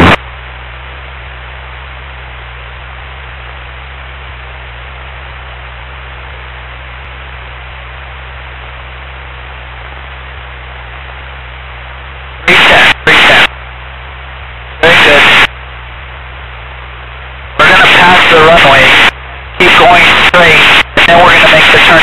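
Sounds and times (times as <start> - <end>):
loud distorted burst: 0.0 - 0.2, 12.4 - 13.5, 14.8 - 15.5, 17.5 - 22.0
aircraft cabin engine drone: 0.0 - 22.0.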